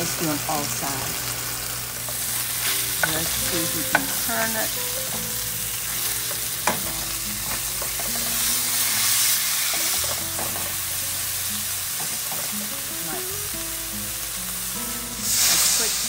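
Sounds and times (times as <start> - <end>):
meat sizzling in a frying pan: 0.0 - 16.0
metal spatula knocking on pan: 3.8 - 4.2.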